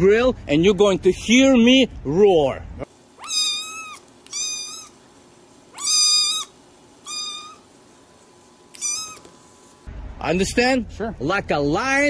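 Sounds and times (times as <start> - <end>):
kitten mewing: 3.2 - 5.0, 5.7 - 7.7, 8.7 - 9.4.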